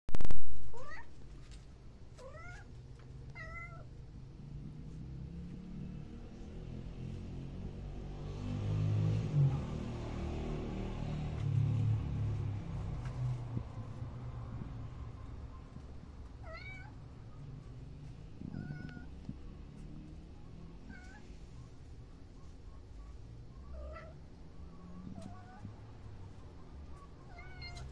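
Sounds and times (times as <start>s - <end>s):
steady low rumble: 10.7s - 25.1s
kitten meowing: 16.4s - 17.0s, 18.4s - 19.2s, 27.3s - 27.9s
kitten mewing: 18.4s - 19.2s.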